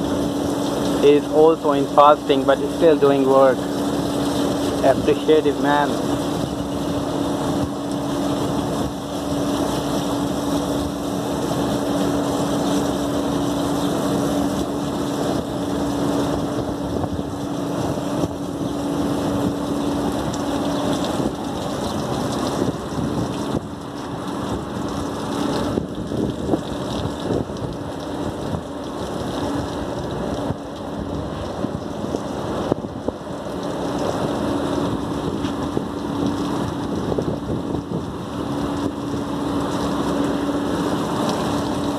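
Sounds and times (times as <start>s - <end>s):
hose water jet hissing on coils: 0.0s - 26.2s.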